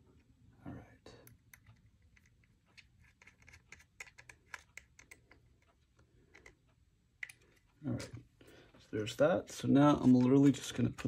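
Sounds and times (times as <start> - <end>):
screwdriver ticking and scratching: 1.3 - 6.8.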